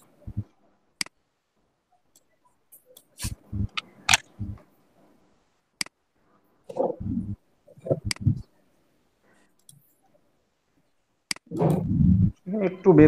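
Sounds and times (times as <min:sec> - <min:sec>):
low thuds: 0:00.3 - 0:00.5, 0:03.4 - 0:04.6
computer mouse clicking: 0:09.6 - 0:09.8.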